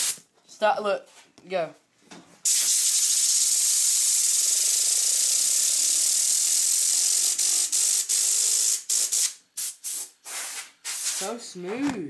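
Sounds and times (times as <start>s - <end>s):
compressed air hissing: 0.0s - 0.2s, 2.4s - 11.4s
fidget spinner humming: 2.9s - 7.7s.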